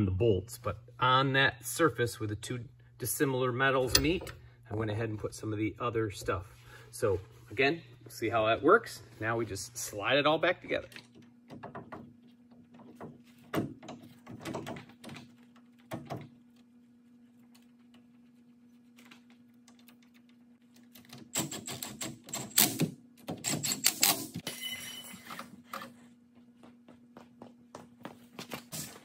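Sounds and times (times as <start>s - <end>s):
faint steady hum: 0.0s - 21.3s
metal clicks and clunks: 3.8s - 4.5s.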